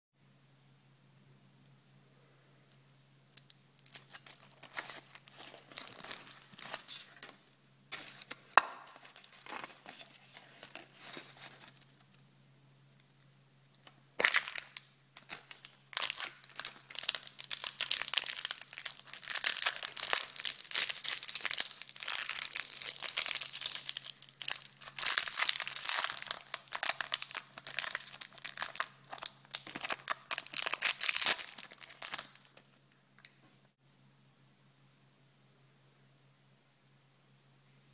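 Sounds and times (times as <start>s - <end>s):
wrapping crinkling: 3.4s - 12.2s, 14.2s - 32.8s
foil wrapper crinkling and tearing: 3.8s - 12.1s, 14.2s - 32.7s.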